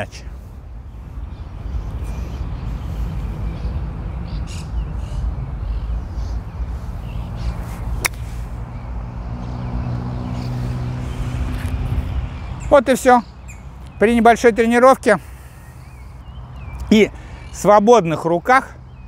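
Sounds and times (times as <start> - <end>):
golf club striking ball: 8.0 - 8.4.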